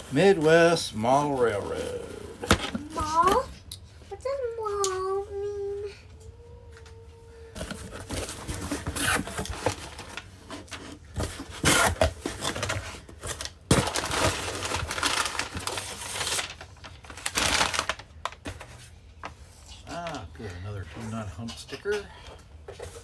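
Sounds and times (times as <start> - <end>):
paper and cardboard rustling: 7.5 - 20.2.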